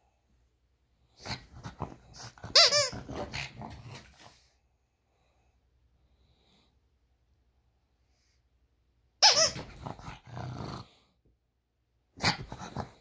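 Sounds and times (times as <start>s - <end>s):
dog squealing: 2.2s - 3.6s, 9.2s - 10.0s.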